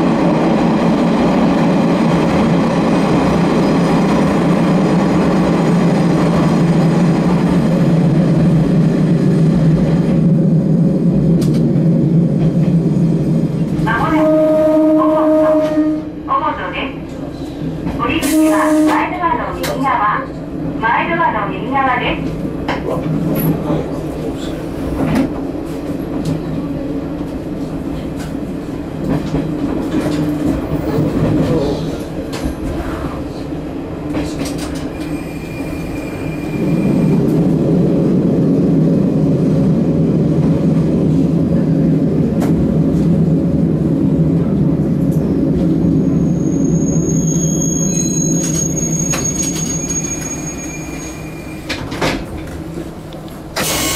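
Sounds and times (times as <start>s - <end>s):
train engine and wheels rumbling: 0.0s - 53.9s
high squeal of wheels or brakes: 34.9s - 37.0s, 46.0s - 51.8s.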